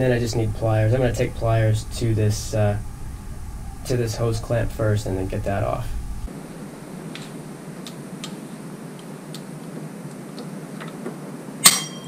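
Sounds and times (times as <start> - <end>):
steady low hum: 0.0 - 12.0
metallic clink with ring: 11.6 - 12.0.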